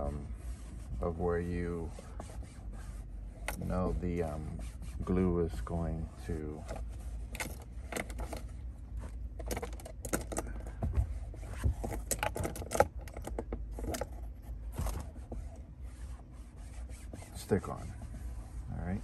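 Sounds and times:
paper towel wiping plastic: 0.0s - 7.3s, 14.2s - 19.0s.

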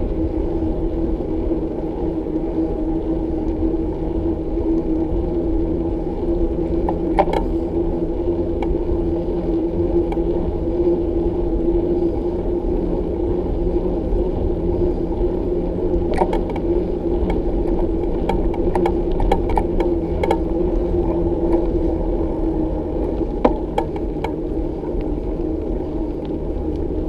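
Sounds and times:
steady hum: 0.0s - 27.0s
wind rumbling on microphone: 0.0s - 27.0s
bicycle rattling clicks: 6.6s - 9.2s, 10.0s - 10.3s, 15.9s - 27.0s.

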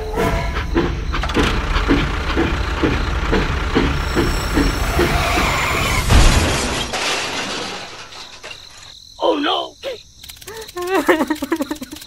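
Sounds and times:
toy tractor and train crash: 0.3s - 9.0s
toy tractor engine chugging: 0.6s - 5.2s, 10.3s - 12.0s.

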